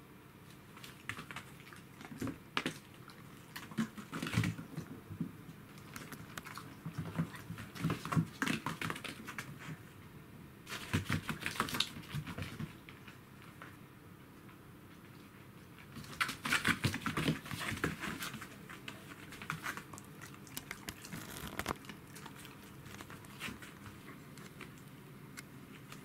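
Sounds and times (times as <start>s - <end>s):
claws clicking on wooden floor: 19.6s - 23.4s.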